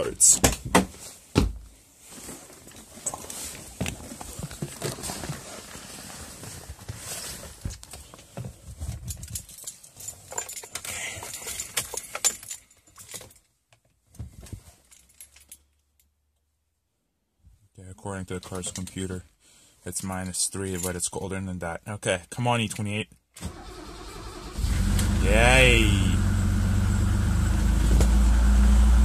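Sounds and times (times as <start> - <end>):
rustling: 0.9 - 13.0
keys jangling: 9.1 - 13.5.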